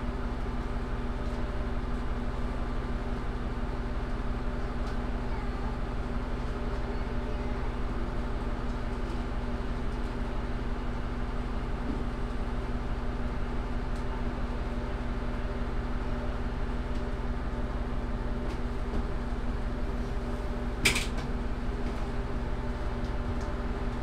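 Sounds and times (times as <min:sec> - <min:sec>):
railcar diesel engine hum: 0:00.0 - 0:24.0.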